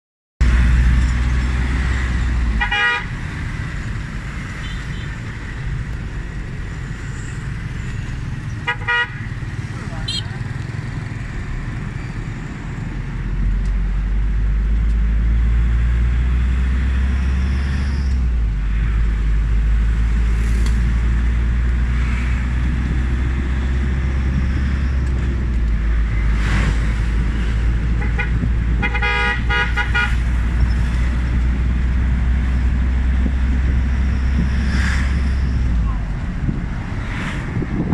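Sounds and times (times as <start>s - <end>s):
car engine and road rumble: 0.4s - 37.9s
vehicle horn toot: 2.6s - 3.1s, 8.7s - 9.2s, 10.0s - 10.3s, 28.0s - 30.2s.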